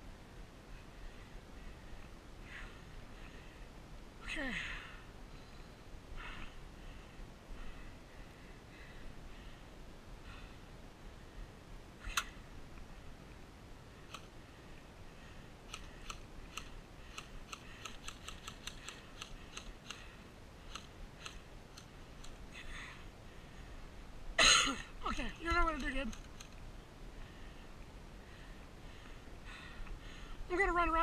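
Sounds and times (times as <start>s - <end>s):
airsoft gun firing ticks: 15.7s - 20.0s.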